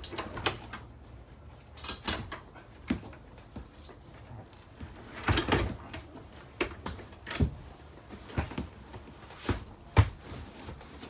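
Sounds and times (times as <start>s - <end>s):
fold-out couch knocks and clunks: 4.7s - 11.0s.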